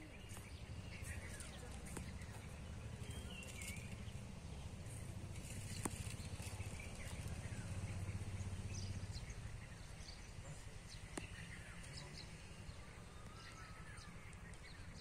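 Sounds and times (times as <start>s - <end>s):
faint bird chirps: 5.4s - 15.0s.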